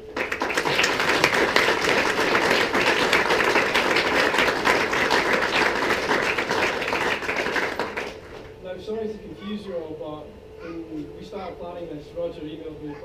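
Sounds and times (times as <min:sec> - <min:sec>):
crowd applauding: 0:00.0 - 0:08.5.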